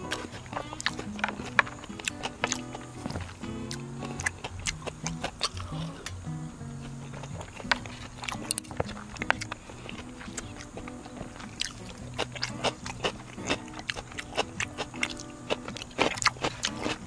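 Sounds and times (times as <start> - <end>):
background music: 0.0 - 17.0
person chewing food: 0.0 - 17.0.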